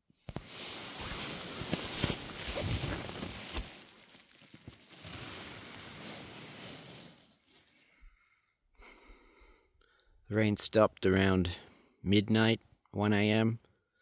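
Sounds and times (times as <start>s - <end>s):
hammock fabric rustling: 0.0s - 7.9s.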